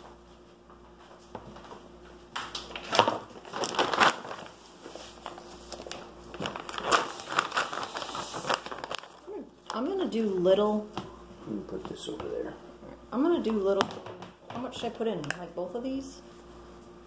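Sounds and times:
plastic bags crinkling: 0:02.6 - 0:10.5.

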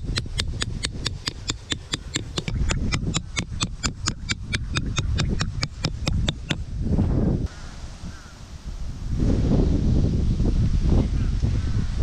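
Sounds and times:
hammer tapping metal peg: 0:00.0 - 0:06.6.

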